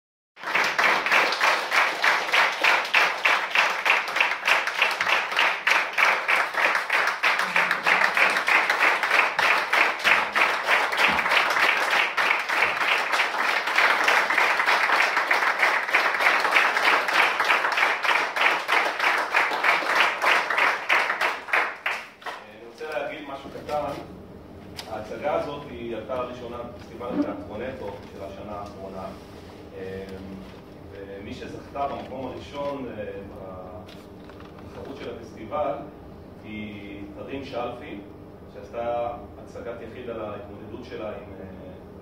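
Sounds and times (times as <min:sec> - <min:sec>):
audience clapping rhythmically: 0:00.4 - 0:23.1.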